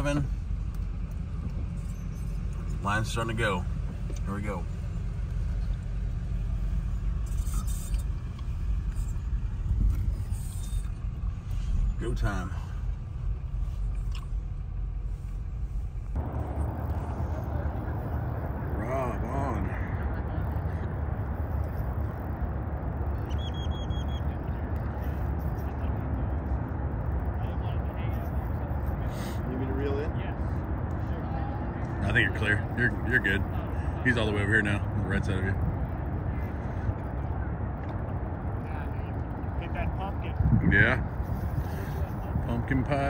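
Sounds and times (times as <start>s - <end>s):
car cabin rumble: 0.0s - 29.1s
high chirps: 23.1s - 24.4s.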